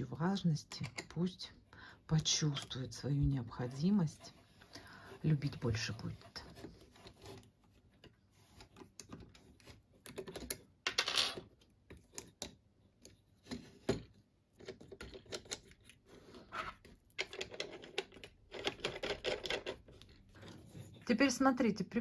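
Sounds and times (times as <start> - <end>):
metal and wooden clicks and knocks: 7.9 - 15.9, 16.9 - 20.1.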